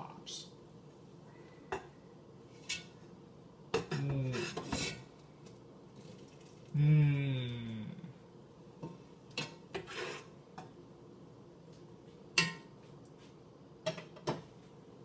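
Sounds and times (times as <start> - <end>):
man humming: 6.7 - 8.2.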